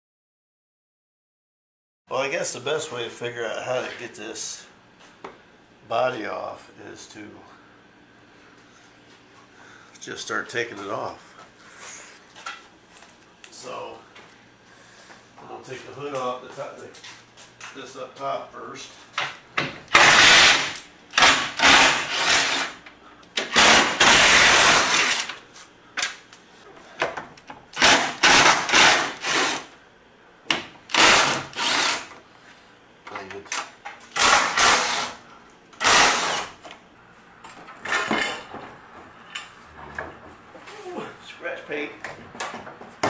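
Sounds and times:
cordless drill motor: 19.9s - 22.8s, 23.4s - 25.3s, 27.8s - 29.7s, 30.9s - 32.1s, 34.1s - 35.2s, 35.8s - 36.6s.

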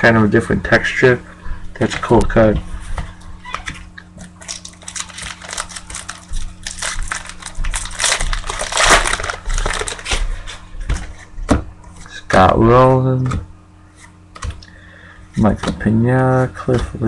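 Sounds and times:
wrapper crinkling: 4.2s - 10.2s.

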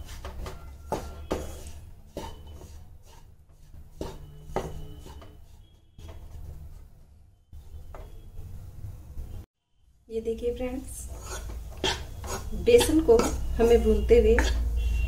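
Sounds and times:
spatula scraping flour in pan: 0.0s - 7.0s, 11.0s - 13.5s
spatula knocking on pan: 0.2s - 2.7s.

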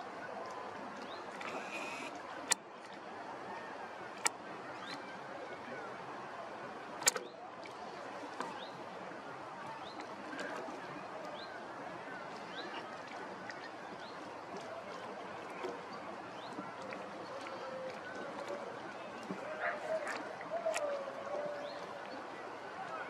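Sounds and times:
faint distant chirps: 1.0s - 2.1s.

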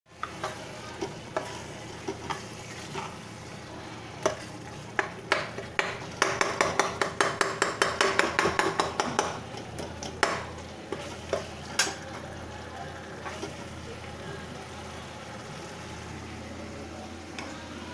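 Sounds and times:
oil sizzling: 0.1s - 17.9s.

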